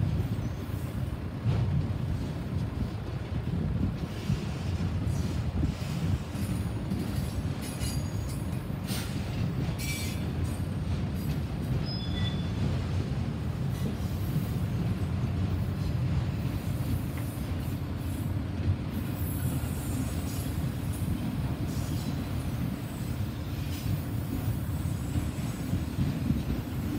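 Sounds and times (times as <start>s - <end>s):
train wheels rumbling on rail: 0.0s - 26.9s
high wheel squeals: 11.8s - 12.6s.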